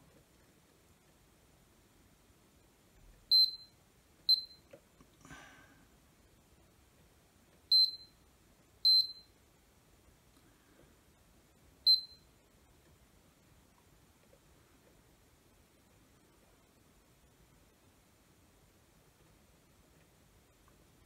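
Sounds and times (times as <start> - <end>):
multimeter short high beeps: 3.3 - 3.7, 4.3 - 4.7, 7.7 - 8.2, 8.9 - 9.3, 11.9 - 12.3.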